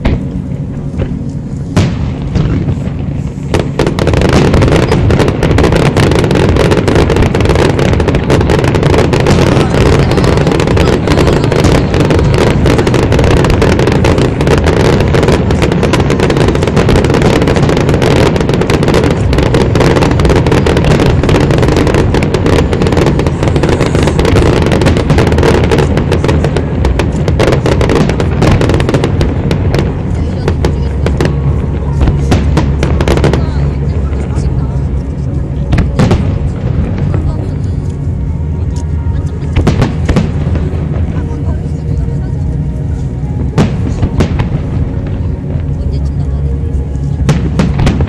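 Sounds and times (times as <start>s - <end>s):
fireworks bangs and crackles: 0.0s - 48.0s.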